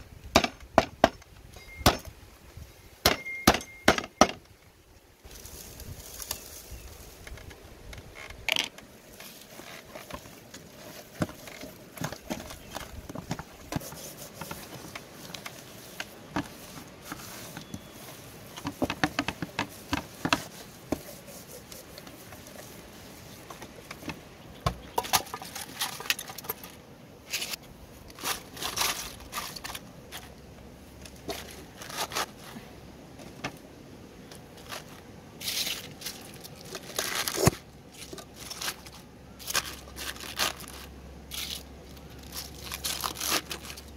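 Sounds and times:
hands rubbing raw chicken: 0:19.4 - 0:23.5.

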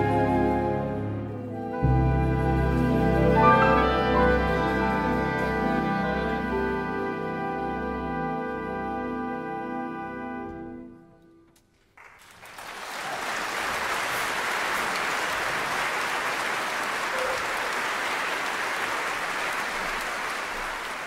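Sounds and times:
audience applause: 0:12.0 - 0:21.0.

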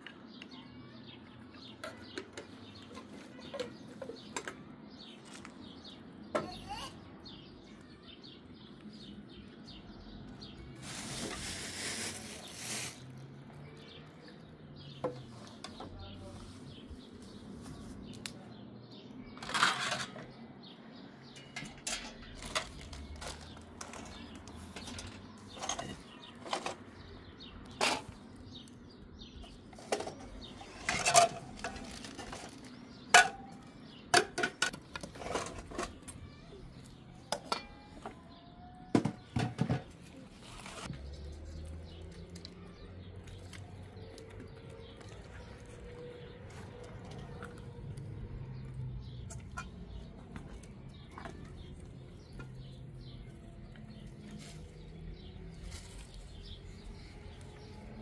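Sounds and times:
dishes and utensils clinking: 0:19.4 - 0:20.4, 0:21.2 - 0:26.9, 0:29.7 - 0:36.2, 0:37.3 - 0:38.3, 0:49.2 - 0:50.5.

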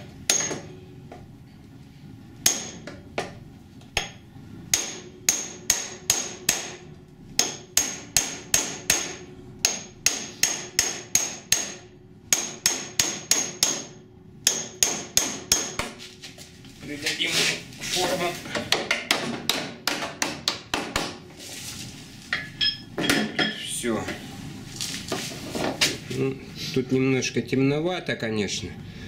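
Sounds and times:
hammer striking steel: 0:00.3 - 0:00.7, 0:02.4 - 0:03.0, 0:04.0 - 0:06.8, 0:07.4 - 0:16.0.

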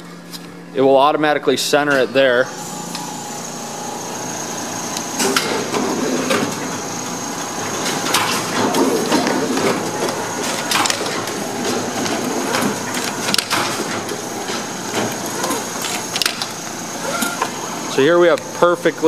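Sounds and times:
high mechanical whine: 0:00.0 - 0:19.0
wrapping machine clatter: 0:05.2 - 0:18.4.

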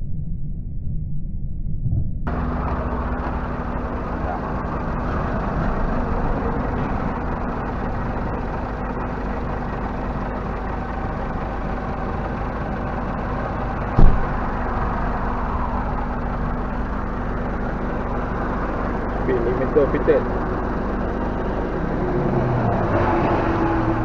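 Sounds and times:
diesel engine idling: 0:02.3 - 0:24.0
sharp thump: 0:14.0 - 0:14.4.

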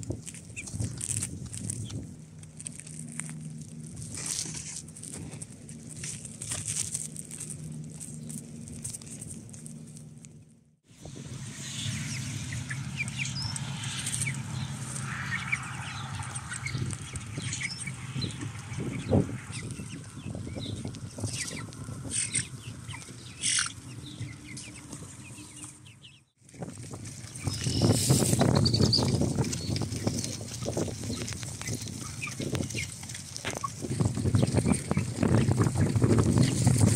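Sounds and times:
chicks peeping and cheeping: 0:00.1 - 0:03.4, 0:11.5 - 0:36.9.

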